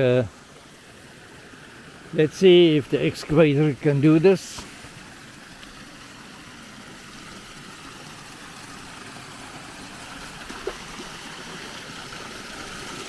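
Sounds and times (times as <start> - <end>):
water rushing over weir: 0.0 - 13.0.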